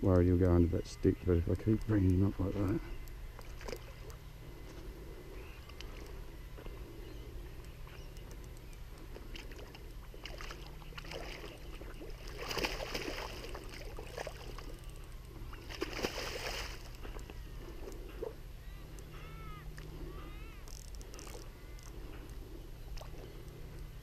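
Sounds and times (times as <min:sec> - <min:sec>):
fish splashing in water: 0:09.3 - 0:14.8, 0:15.5 - 0:17.0.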